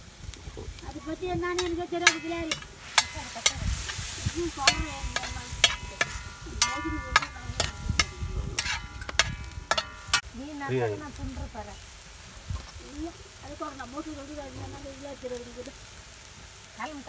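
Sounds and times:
frying sizzle: 0.0s - 17.0s
metal spatula clanking in wok: 1.5s - 10.3s.

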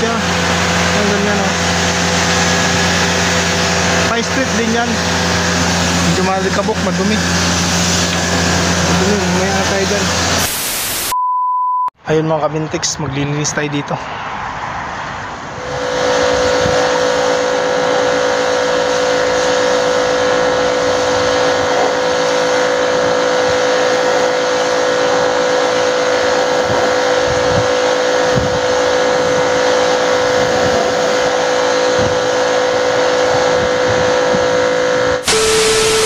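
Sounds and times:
pressure washer motor hum: 0.0s - 11.1s, 15.6s - 36.0s
hissing water spray: 0.3s - 11.0s, 15.7s - 33.4s.

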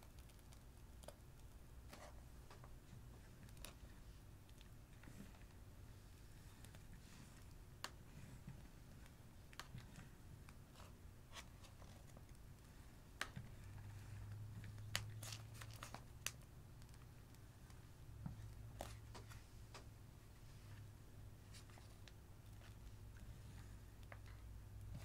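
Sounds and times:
low steady hum: 0.0s - 25.0s
plastic piping bag crinkling: 14.8s - 17.4s.

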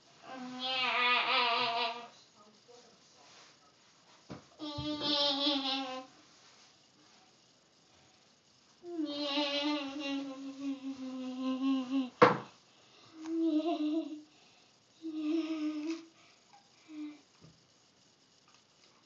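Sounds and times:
boy humming: 0.2s - 2.1s, 4.6s - 6.1s, 8.8s - 12.2s, 13.1s - 14.3s, 15.0s - 16.2s.

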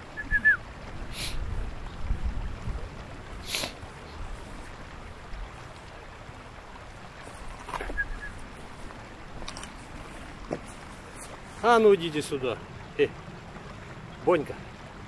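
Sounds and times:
wind rumbling on microphone: 0.0s - 11.9s
outdoor hiss: 0.0s - 15.0s
dry grass rustling: 0.9s - 12.0s.

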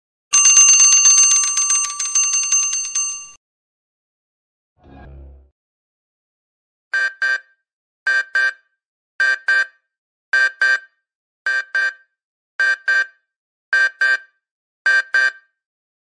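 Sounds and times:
alarm clock beeping: 0.3s - 3.4s.

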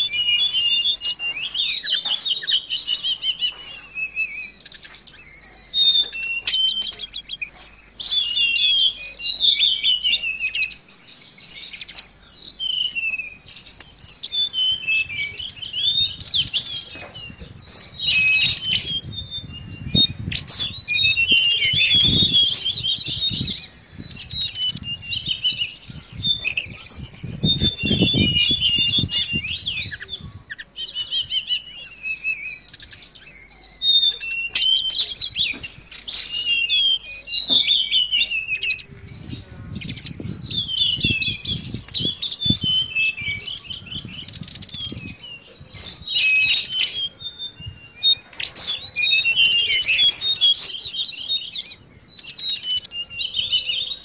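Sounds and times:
bird singing high chirps: 0.0s - 54.0s.

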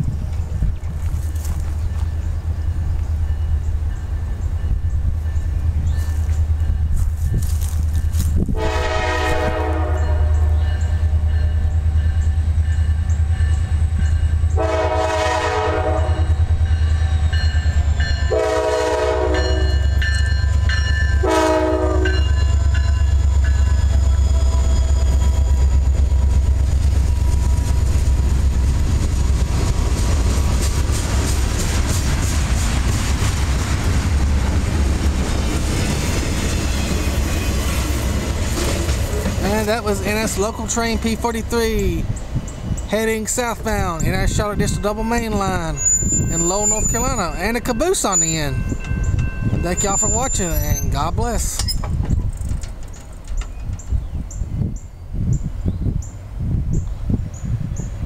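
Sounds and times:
diesel locomotive rumble: 0.0s - 58.0s
locomotive horn blasts: 8.5s - 11.7s, 14.5s - 16.5s, 18.0s - 20.2s, 21.1s - 22.9s.

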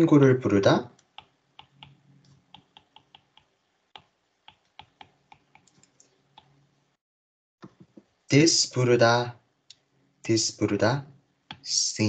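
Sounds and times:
stylus tapping on glass screen: 1.2s - 2.0s, 2.6s - 5.7s.

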